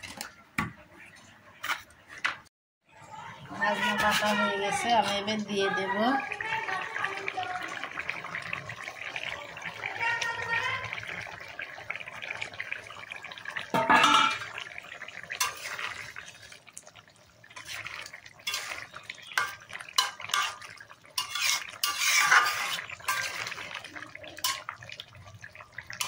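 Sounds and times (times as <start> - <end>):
metal bowl scraping a pot: 3.7 - 5.4, 13.7 - 14.6, 15.3 - 16.1, 17.5 - 24.7.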